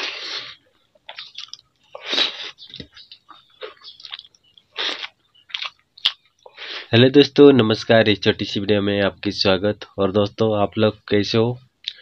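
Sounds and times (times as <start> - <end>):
wet eating mouth sounds: 0.0 - 6.6.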